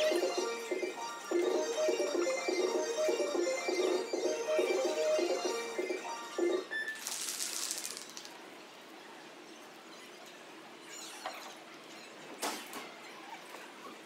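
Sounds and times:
background music: 0:00.0 - 0:06.8.

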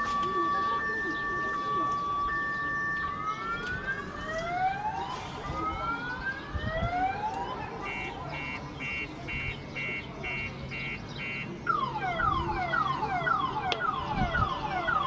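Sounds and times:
car alarm siren sweeps: 0:00.0 - 0:15.0
car alarm short beeps: 0:07.9 - 0:12.4.

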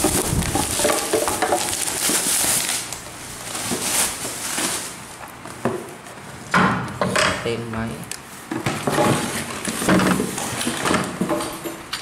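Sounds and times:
bubble wrap crinkling: 0:00.0 - 0:05.5.

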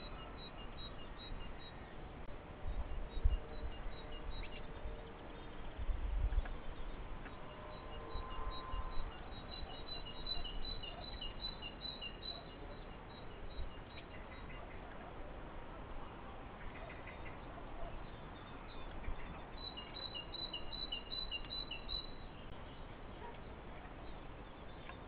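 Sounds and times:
songbird chirping: 0:00.0 - 0:15.1, 0:16.1 - 0:25.0.

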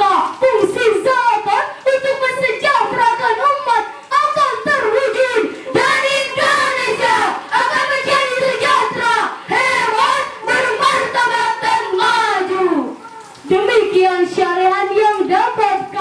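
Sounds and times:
young women singing a chant: 0:00.0 - 0:13.0.

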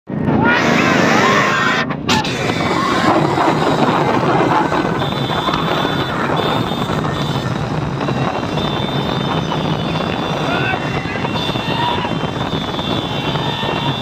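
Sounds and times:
wind buffeting microphone: 0:02.0 - 0:14.0
motorcycle engine running: 0:02.8 - 0:14.0.

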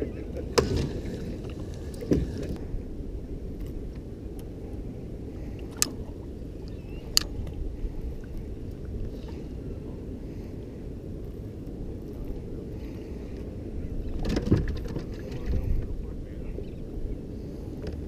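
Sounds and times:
wind and water rumble: 0:00.0 - 0:18.0.

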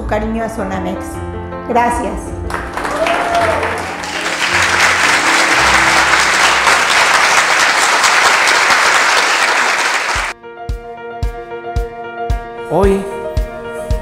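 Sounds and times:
crowd applauding: 0:02.5 - 0:10.4
music with steady beat: 0:10.4 - 0:14.0.

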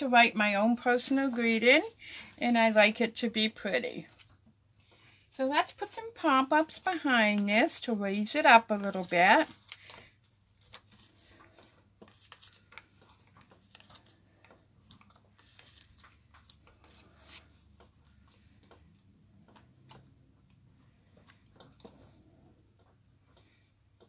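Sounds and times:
cardstock rustling: 0:05.8 - 0:20.2
small clicks of foam pads: 0:09.4 - 0:24.0.

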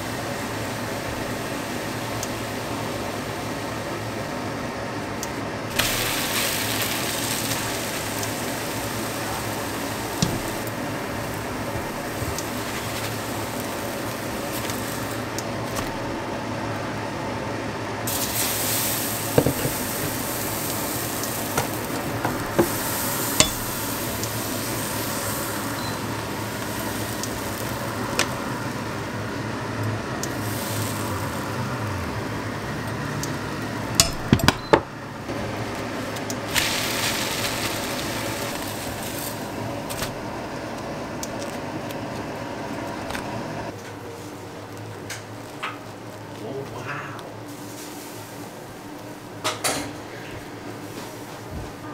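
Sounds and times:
pancakes sizzling in a pan: 0:05.7 - 0:15.4, 0:18.1 - 0:29.3, 0:30.3 - 0:32.2, 0:36.4 - 0:39.7.

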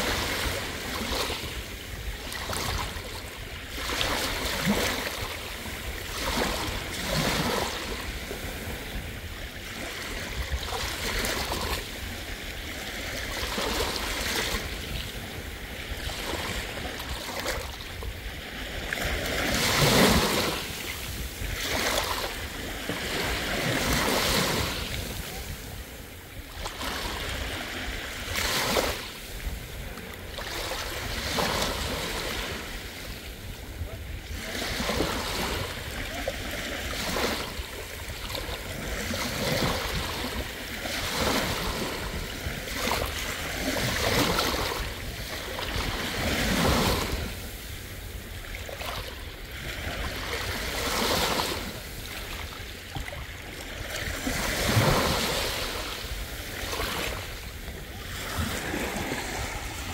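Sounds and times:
sea waves washing onto beach: 0:00.0 - 0:59.9.

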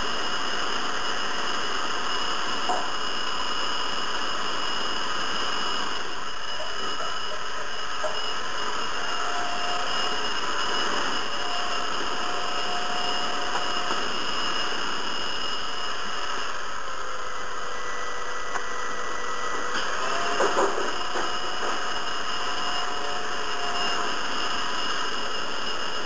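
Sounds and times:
hair dryer running: 0:00.0 - 0:26.0.

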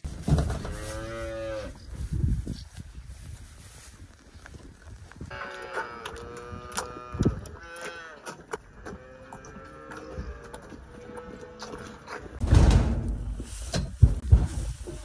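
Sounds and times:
calves mooing: 0:05.3 - 0:12.4.

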